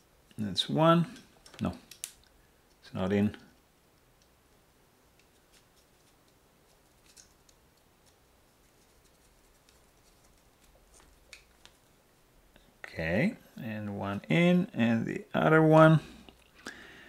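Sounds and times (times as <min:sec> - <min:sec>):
faint small clicks: 0:01.2 - 0:02.8.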